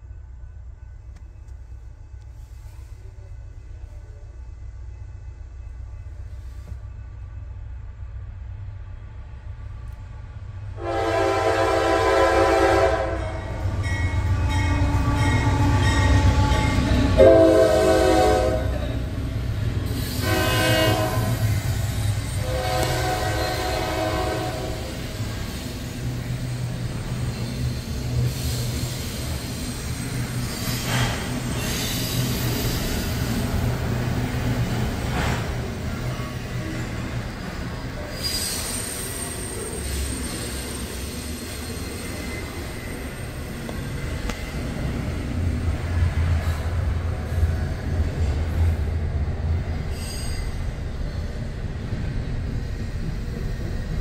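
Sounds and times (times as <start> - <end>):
train wheels rumbling: 0.0 - 54.0
locomotive air horn blasts: 10.8 - 13.6, 14.4 - 19.0, 20.1 - 21.7, 22.4 - 25.0
train cars clanking: 11.0 - 54.0.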